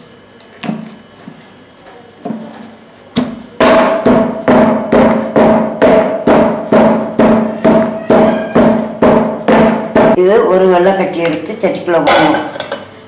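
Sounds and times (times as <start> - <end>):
stone pestle pounding in mortar: 3.2 - 10.2.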